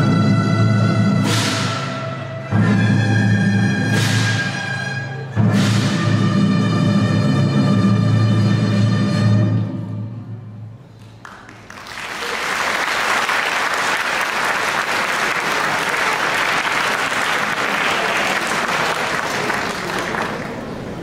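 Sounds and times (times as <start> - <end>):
audience applauding: 11.0 - 21.0.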